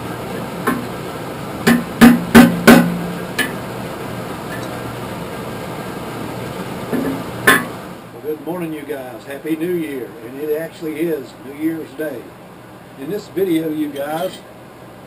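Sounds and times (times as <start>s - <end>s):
hammer striking steel on anvil: 1.7s - 3.6s.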